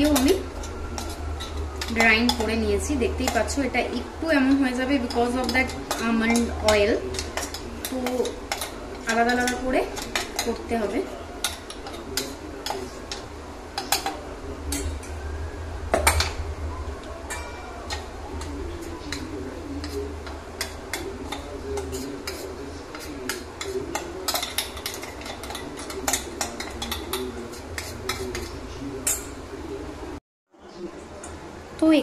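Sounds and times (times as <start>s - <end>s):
metal spoon scraping steel jar: 0.0s - 3.7s, 17.3s - 29.3s.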